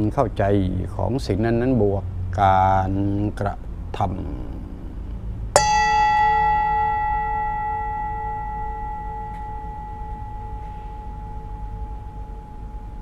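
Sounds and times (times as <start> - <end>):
singing bowl ringing: 5.6 - 13.0.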